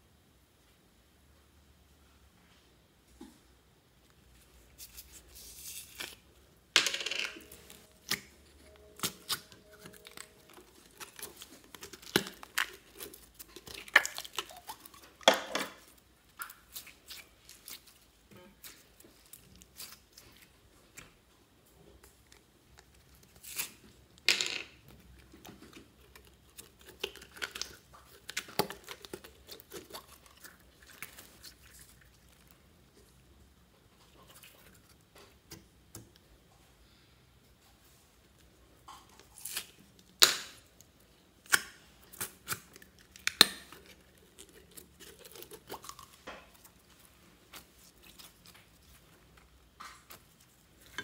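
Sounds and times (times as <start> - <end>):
slime crackling and popping: 7.4 - 20.6.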